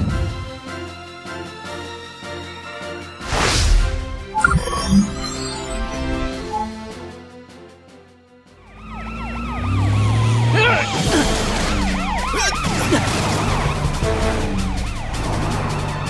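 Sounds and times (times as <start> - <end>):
background music: 0.0 - 16.0
cartoon sirens wailing: 8.6 - 16.0.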